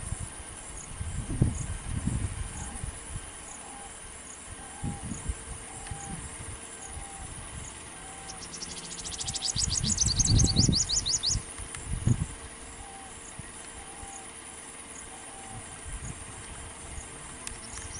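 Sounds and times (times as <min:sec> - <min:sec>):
bird singing high rising notes: 0:06.8 - 0:11.5.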